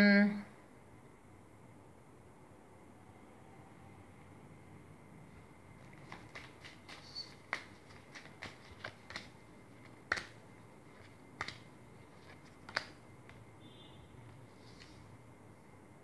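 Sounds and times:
cards shuffled by hand: 5.9s - 13.4s
sharp card snaps: 6.1s - 10.4s, 11.0s - 13.4s.

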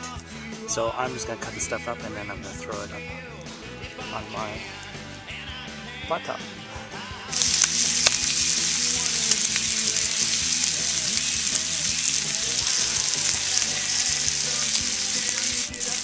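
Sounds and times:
bacon sizzling: 7.2s - 16.0s
fat popping: 7.3s - 16.0s.

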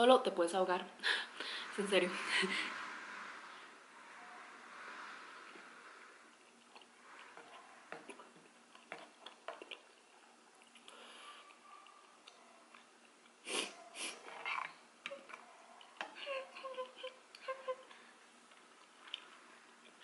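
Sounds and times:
person sniffing: 1.0s - 6.2s, 13.4s - 14.3s
chewing sticky rice cakes: 6.3s - 13.5s, 16.8s - 20.0s
wet mouth clicks: 8.0s - 10.0s.

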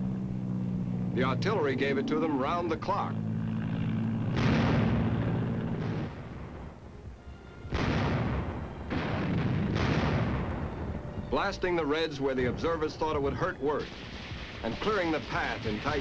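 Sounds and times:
steady low drone: 0.0s - 13.6s
artillery firing: 4.3s - 6.8s, 7.7s - 11.5s, 13.8s - 16.0s.

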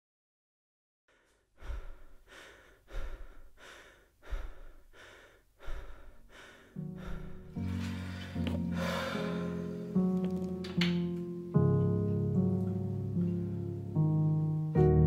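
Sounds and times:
person breathing heavily: 1.1s - 10.0s.

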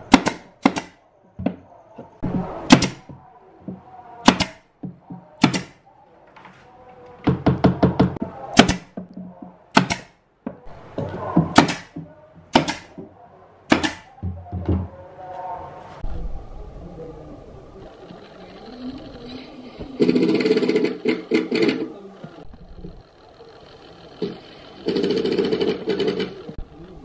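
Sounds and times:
nail gun firing into plywood: 0.0s - 1.0s, 2.7s - 3.0s, 4.3s - 4.6s, 5.4s - 5.8s, 8.6s - 8.9s, 9.7s - 10.2s, 11.6s - 12.9s, 13.7s - 14.1s.

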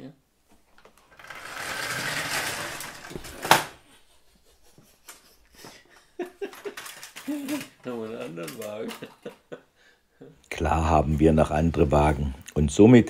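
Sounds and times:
model train rattling on track: 1.2s - 3.1s.

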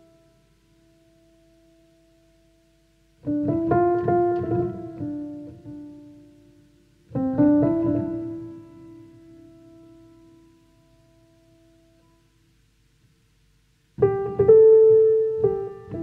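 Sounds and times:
background piano music: 3.2s - 12.0s, 14.0s - 16.0s.

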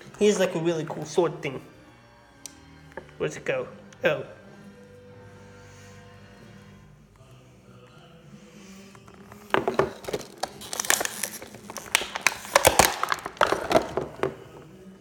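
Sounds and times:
plastic packaging crinkling: 9.5s - 14.3s.

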